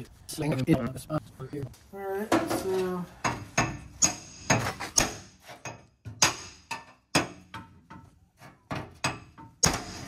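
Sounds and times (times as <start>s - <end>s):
hammer striking steel: 3.2s - 7.7s, 8.8s - 10.0s.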